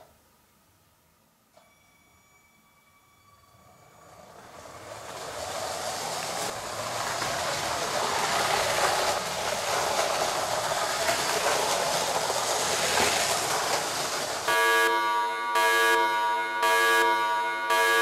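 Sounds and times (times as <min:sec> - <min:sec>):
toy train rattling on track: 0:03.6 - 0:14.6.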